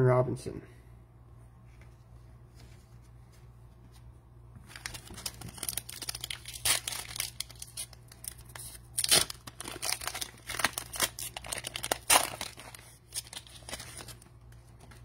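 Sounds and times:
foil wrapper crinkling and tearing: 4.7s - 15.0s.

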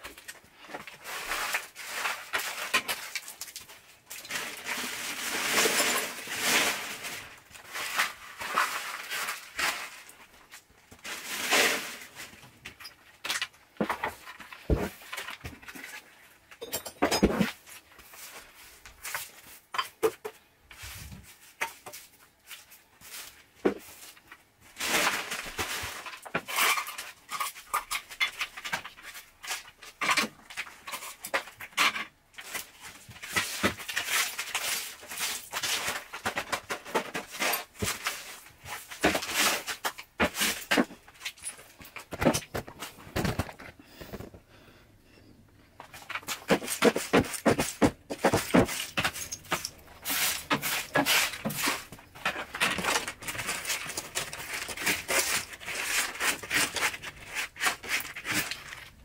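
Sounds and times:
push broom sweeping floor: 4.2s - 10.1s, 11.0s - 12.5s, 17.2s - 26.8s, 30.9s - 41.1s, 45.9s - 59.0s.

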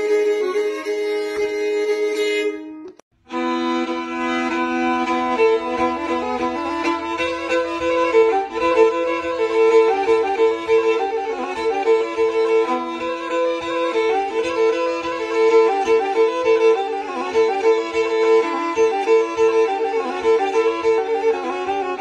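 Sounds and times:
fast bowed string melody: 0.0s - 22.0s
steady low beat: 3.8s - 19.4s.

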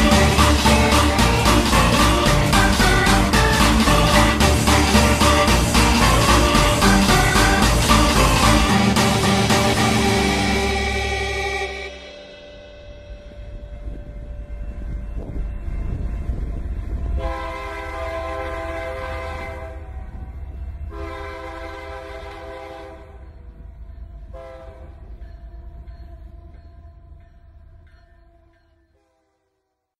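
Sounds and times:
horn blasts sounding a chord: 0.0s - 14.4s, 17.0s - 20.3s.

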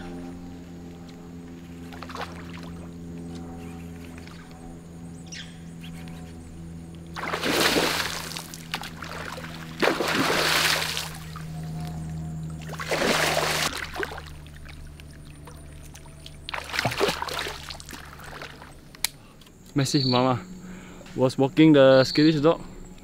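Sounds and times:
water splashing: 1.9s - 2.9s, 7.1s - 11.8s, 12.6s - 18.9s
fish thrashing at surface: 7.2s - 11.4s, 12.6s - 14.8s, 16.4s - 18.8s.

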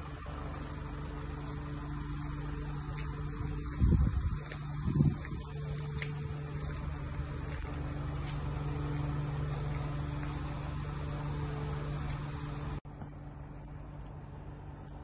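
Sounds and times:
van engine idling: 0.0s - 15.0s.

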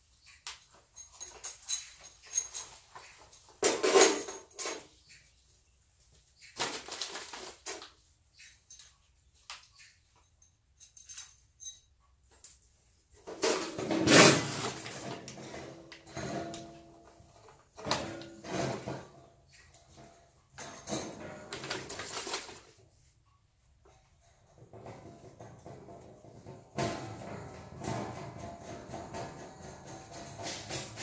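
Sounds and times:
tools scraping and knocking on floor: 1.0s - 5.2s, 13.2s - 22.8s, 23.9s - 31.0s
board scraping and rattling: 13.2s - 16.9s, 17.7s - 19.3s.

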